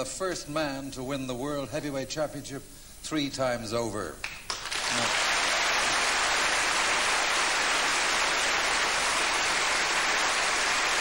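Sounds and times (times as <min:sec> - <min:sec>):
audience applauding: 0:04.5 - 0:11.0.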